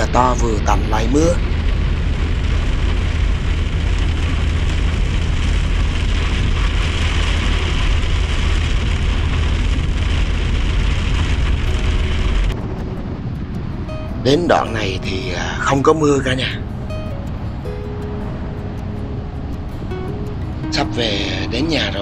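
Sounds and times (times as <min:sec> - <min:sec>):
heavy rain on windshield: 0:00.0 - 0:16.6
road and engine rumble: 0:00.0 - 0:22.0.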